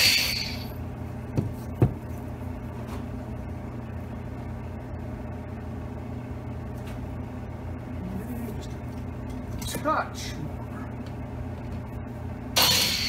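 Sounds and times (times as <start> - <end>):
tool knocking on wooden bench: 1.4 - 2.0.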